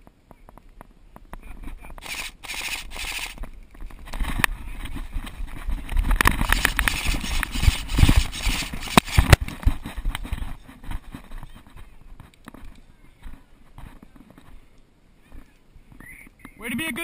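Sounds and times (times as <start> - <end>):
wind on microphone: 1.4 - 16.1
running footsteps on dry ground: 1.6 - 12.3.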